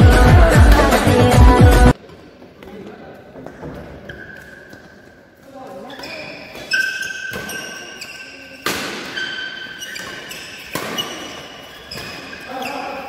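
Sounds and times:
shoes squeaking on court floor: 2.0s - 13.0s
racket striking shuttlecock: 8.6s - 12.4s.

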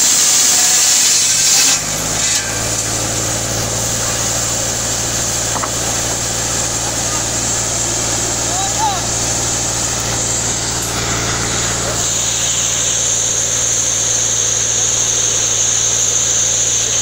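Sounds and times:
circular saw whine: 0.0s - 17.0s
tractor engine running: 1.8s - 15.4s.

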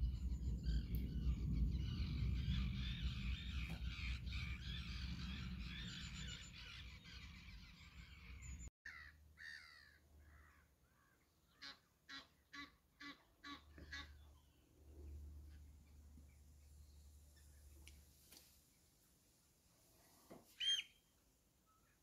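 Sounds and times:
low rumble: 0.0s - 8.7s
distant birds calling: 0.0s - 18.1s, 20.5s - 21.1s.

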